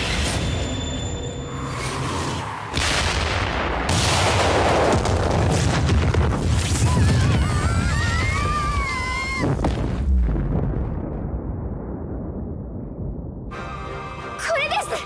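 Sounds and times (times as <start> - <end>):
magical explosion blasts: 2.2 - 7.9.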